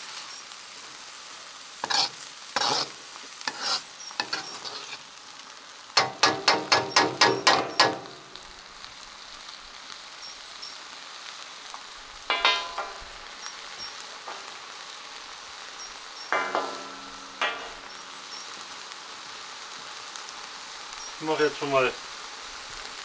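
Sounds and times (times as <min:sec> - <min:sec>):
food sizzling in a wok: 0:00.0 - 0:23.0
ringing metal knocks: 0:12.3 - 0:13.0, 0:16.3 - 0:17.8.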